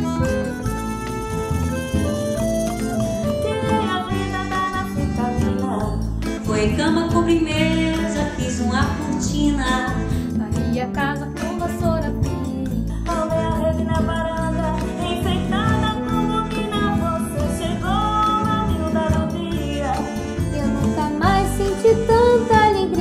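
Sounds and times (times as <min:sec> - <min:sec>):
accordion: 0:00.0 - 0:23.0
acoustic guitar: 0:00.0 - 0:23.0
bass guitar: 0:00.0 - 0:23.0
women singing: 0:03.9 - 0:23.0.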